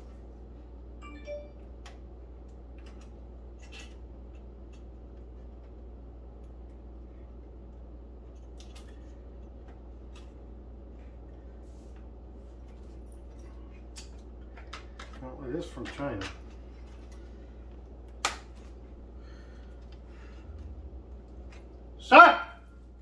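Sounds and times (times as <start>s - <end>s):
low hum: 16.4s - 22.0s.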